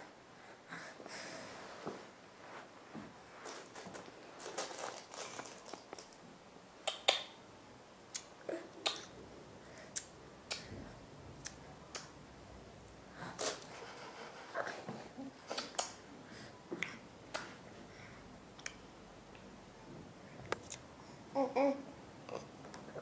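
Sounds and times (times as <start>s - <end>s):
soft rustling on carpet: 1.2s - 6.1s.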